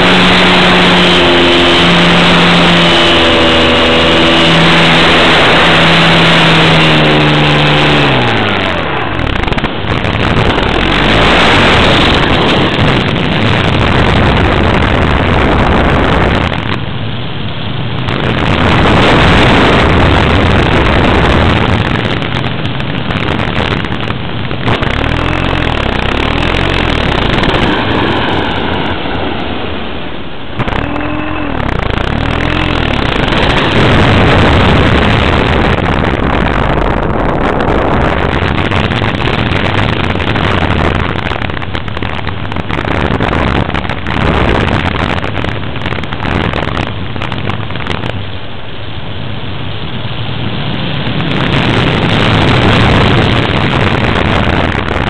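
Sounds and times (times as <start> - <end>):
wind and motor noise: 0.0 - 55.0
rising and falling tones: 24.7 - 28.3, 30.6 - 35.7.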